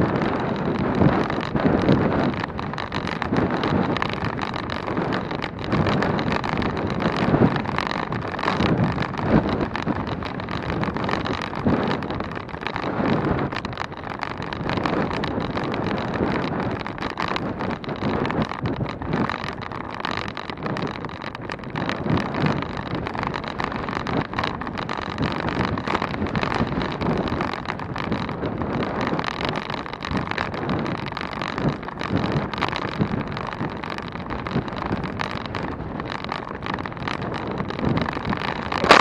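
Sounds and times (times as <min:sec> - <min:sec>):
wind rushing over microphone: 0:00.0 - 0:39.0.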